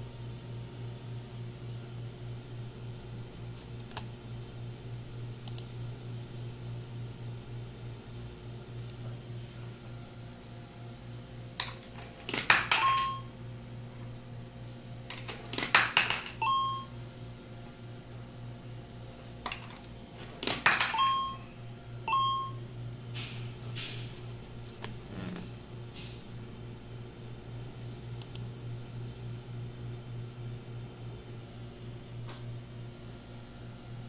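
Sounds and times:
coins clattering into machine: 0:12.3 - 0:13.1, 0:15.5 - 0:16.5, 0:20.4 - 0:21.1
short electronic beeps: 0:12.8 - 0:13.3, 0:16.4 - 0:16.9, 0:20.9 - 0:21.4, 0:22.1 - 0:22.6.

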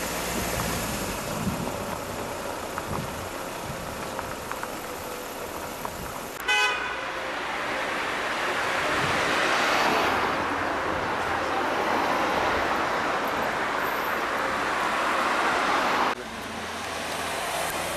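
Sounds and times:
vehicle road and wind noise: 0:00.0 - 0:17.9
short car horn toot: 0:06.4 - 0:07.0.

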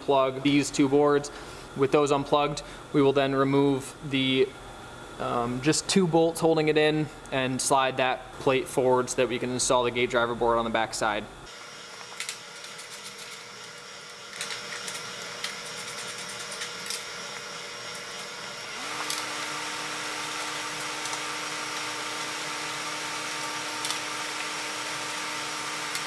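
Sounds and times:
steady machine hum: 0:00.0 - 0:26.0.

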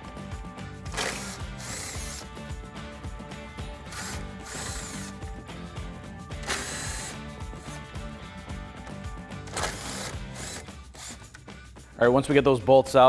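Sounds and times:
background music with beat: 0:00.0 - 0:13.0
power driver whirring: 0:00.9 - 0:02.3, 0:03.9 - 0:05.3, 0:06.4 - 0:07.8, 0:09.5 - 0:11.4.

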